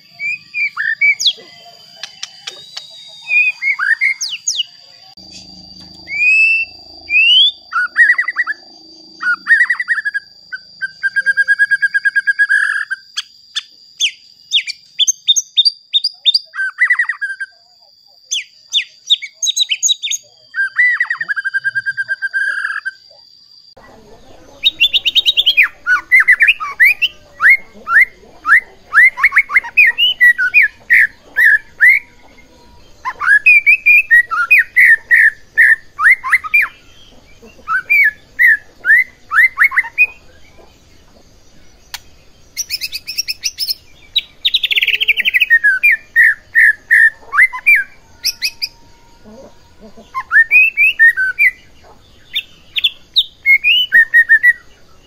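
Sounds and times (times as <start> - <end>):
bird singing loudly: 0.0 - 17.6, 18.2 - 23.1, 23.9 - 40.7, 41.8 - 54.9.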